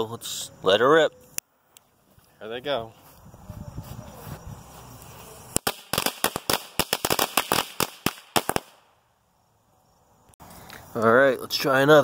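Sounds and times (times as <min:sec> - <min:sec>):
firecrackers banging: 0:05.5 - 0:08.9.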